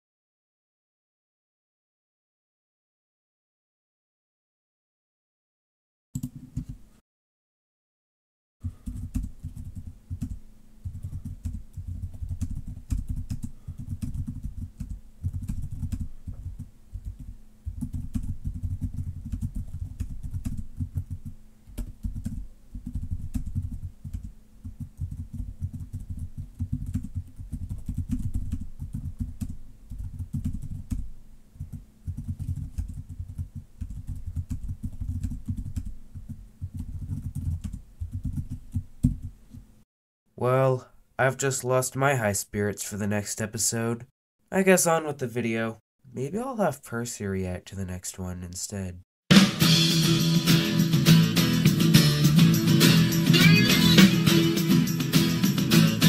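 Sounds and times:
typing on computer keyboard: 8.6 - 39.3.

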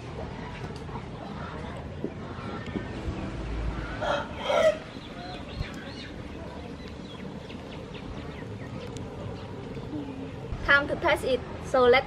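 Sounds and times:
chicken calling: 3.8 - 6.1.

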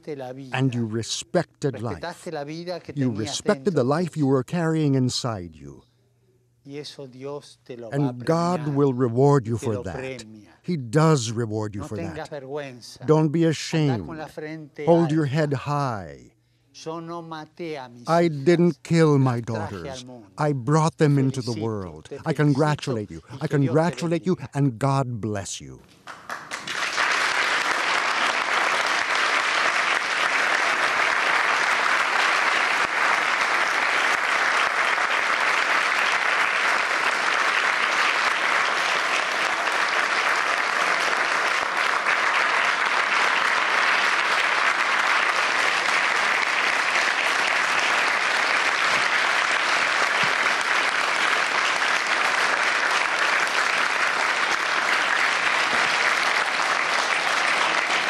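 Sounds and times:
audience applauding: 8.0 - 10.2, 20.8 - 24.8, 26.0 - 58.0.

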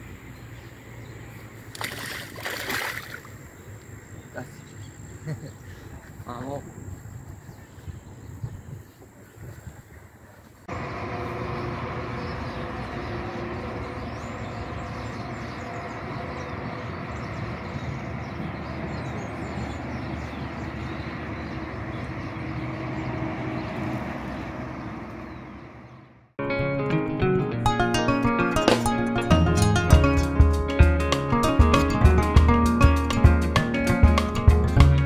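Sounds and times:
heavy trucks crossing bridge: 10.6 - 26.3.

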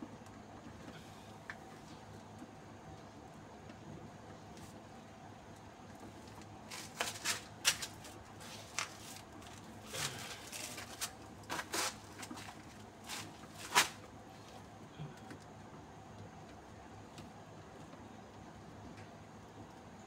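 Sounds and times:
coconut husk rustling and scraping: 6.0 - 14.8.

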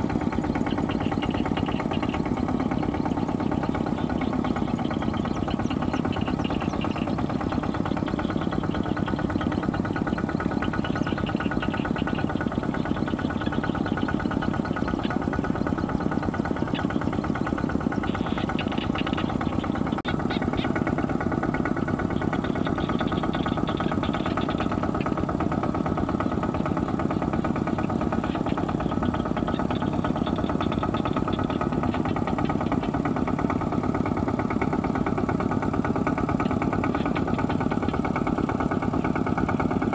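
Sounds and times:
diesel tractor engine knocking: 0.0 - 39.9.

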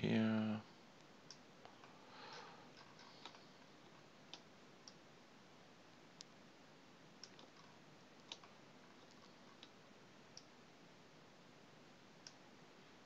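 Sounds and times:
background hiss: 0.0 - 13.0
computer mouse clicks: 2.7 - 5.0, 7.2 - 10.5.

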